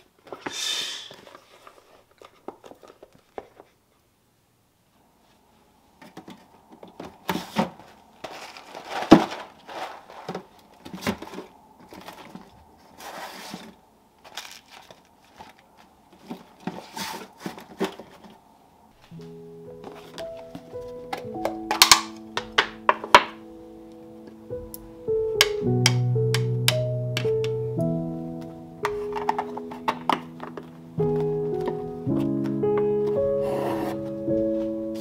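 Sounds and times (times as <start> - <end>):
bags and containers rustling: 6.2 - 22.9, 28.8 - 32.5
faint steady hum: 10.1 - 33.4
music: 19.1 - 35.0.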